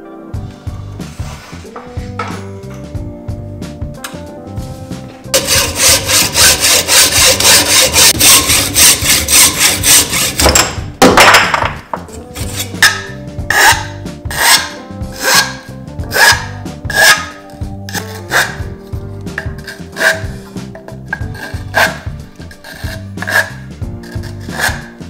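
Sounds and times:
file strokes on tube end: 5.4s - 10.5s, 12.2s - 18.6s, 19.4s - 25.0s
hacksaw cutting tube: 5.4s - 10.8s, 12.1s - 18.7s, 19.3s - 25.0s.

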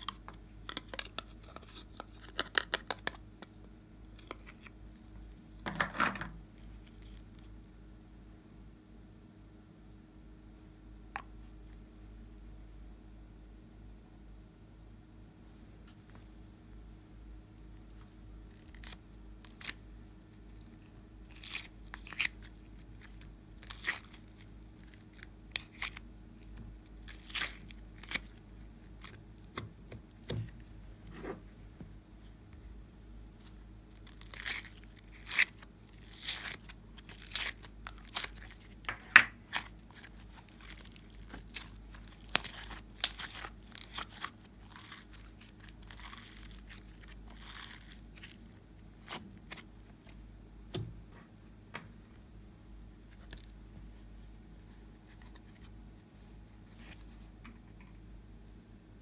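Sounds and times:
sticky slime crackles and pops: 18.5s - 30.4s, 33.9s - 49.7s.

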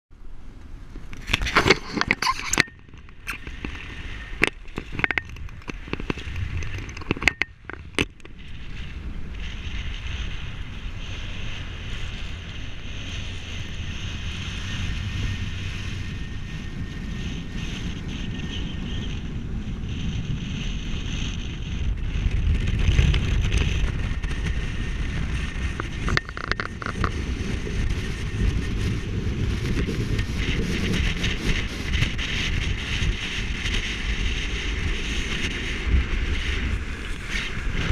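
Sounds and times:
wind buffeting microphone: 0.2s - 37.9s
camera handling clicks and knocks: 4.4s - 8.3s.

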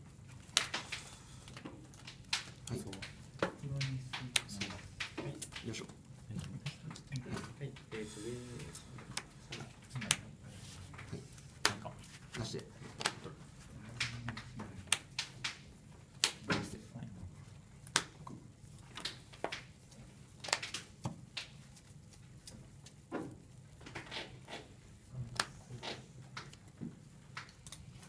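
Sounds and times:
low room hum: 0.0s - 28.0s
trading cards clicking and sliding: 0.2s - 15.6s.

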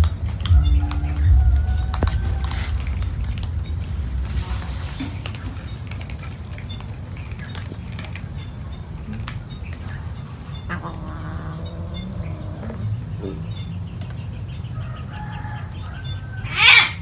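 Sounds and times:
cats crunching dry kibble: 0.0s - 13.1s
cat meowing: 10.7s - 12.9s.

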